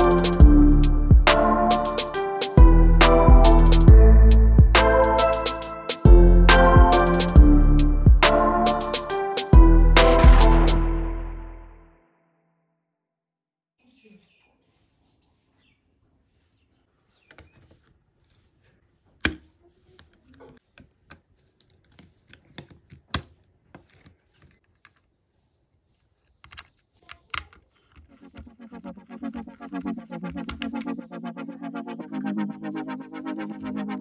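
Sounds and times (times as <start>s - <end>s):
background music with even pulse: 0.0s - 12.0s, 28.5s - 34.0s.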